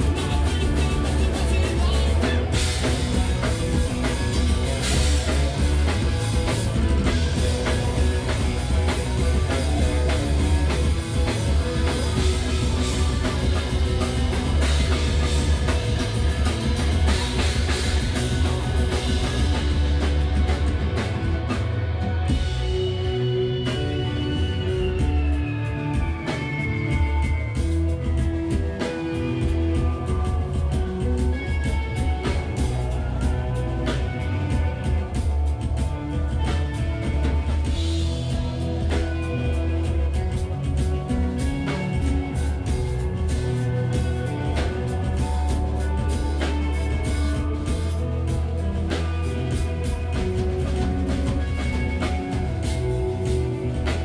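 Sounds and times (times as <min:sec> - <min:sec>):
rock band playing: 0:00.0 - 0:54.0.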